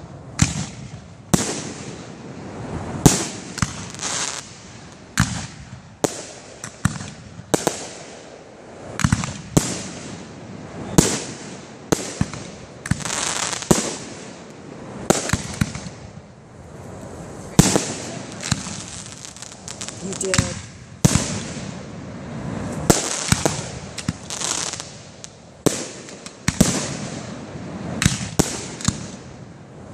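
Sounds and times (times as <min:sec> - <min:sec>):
firework hissing: 0:01.3 - 0:29.4
firework shells bursting: 0:10.9 - 0:16.3, 0:17.5 - 0:21.9, 0:22.7 - 0:29.4.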